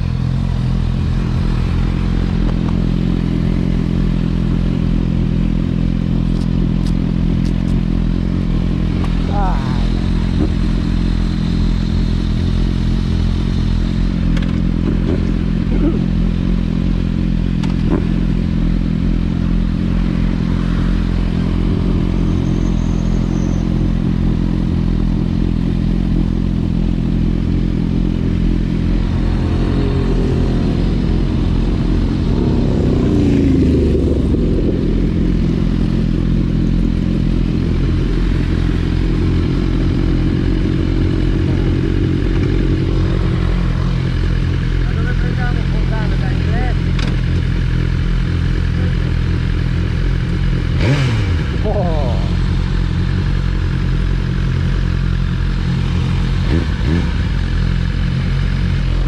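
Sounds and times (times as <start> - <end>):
motorcycle engine idling: 0.0 - 59.0
engine note rising and falling: 27.8 - 47.1.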